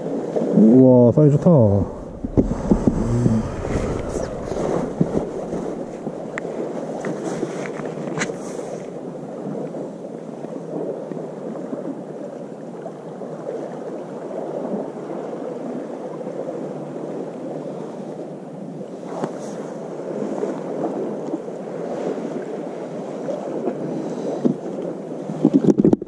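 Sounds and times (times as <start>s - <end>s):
sea waves on rocks: 0.0s - 12.3s.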